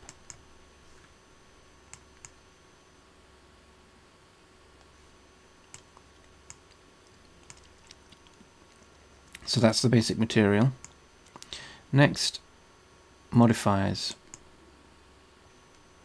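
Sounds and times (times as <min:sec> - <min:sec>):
computer mouse clicks: 0:00.0 - 0:00.4, 0:01.9 - 0:02.4, 0:05.7 - 0:08.4
faint low hum: 0:00.0 - 0:16.0.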